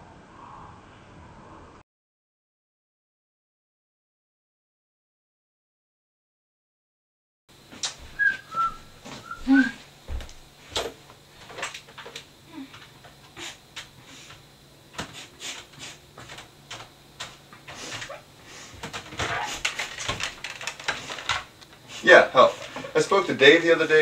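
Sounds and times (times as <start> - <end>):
low steady hum: 7.5 - 24.0
short whistled notes: 8.2 - 9.8.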